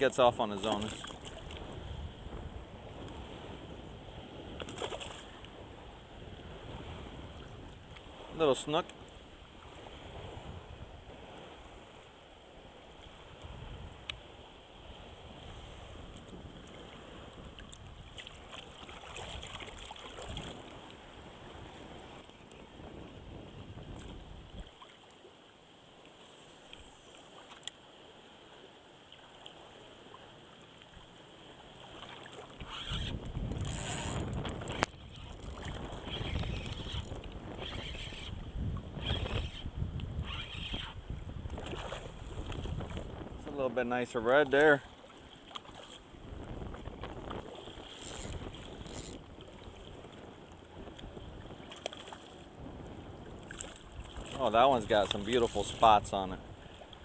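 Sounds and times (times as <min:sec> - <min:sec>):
water sloshing and lapping: 0:00.0 - 0:02.1, 0:04.2 - 0:10.4, 0:11.1 - 0:57.0
wind rumbling on microphone: 0:00.0 - 0:24.8, 0:31.8 - 0:57.0
faint clicks: 0:27.5 - 0:27.8.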